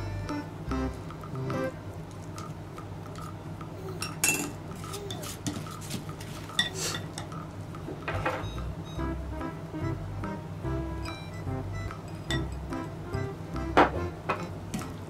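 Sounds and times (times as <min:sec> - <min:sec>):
utensils clinking against dishes: 0:02.4 - 0:08.6, 0:11.9 - 0:12.6.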